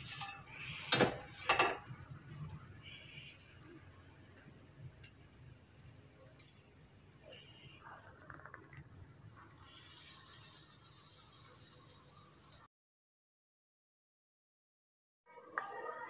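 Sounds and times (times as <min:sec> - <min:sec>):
food hissing in a pan: 0:00.0 - 0:03.7, 0:09.4 - 0:12.7.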